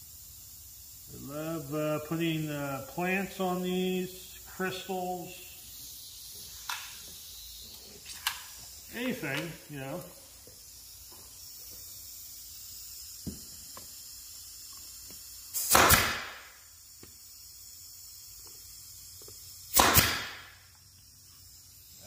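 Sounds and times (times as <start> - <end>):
nail gun firing: 15.5 - 16.6, 19.7 - 20.6.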